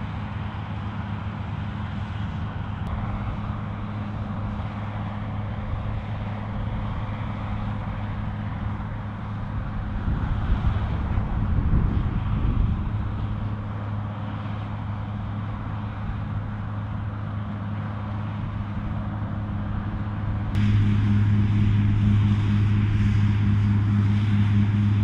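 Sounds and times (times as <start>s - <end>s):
combine harvester engine hum: 0.0s - 25.0s
threshing noise: 20.6s - 25.0s.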